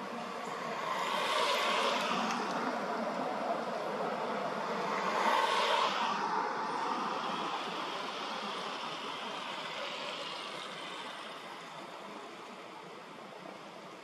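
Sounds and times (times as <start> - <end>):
passing vehicle tyre hiss: 0.0 - 13.9.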